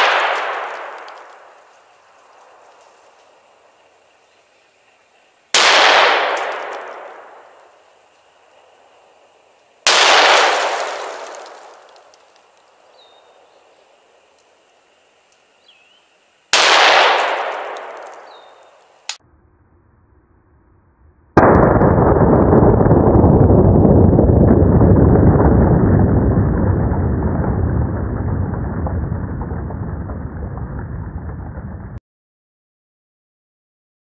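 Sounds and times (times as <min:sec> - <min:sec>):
gunshots with long echo: 0:00.0 - 0:01.7, 0:05.5 - 0:07.9, 0:09.8 - 0:12.0, 0:16.5 - 0:18.8, 0:21.4 - 0:32.0.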